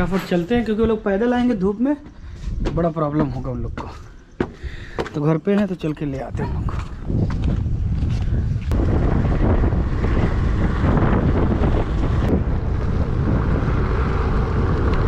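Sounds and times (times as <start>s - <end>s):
wind buffeting microphone: 0.0s - 15.0s
motorcycle engine humming: 6.9s - 15.0s.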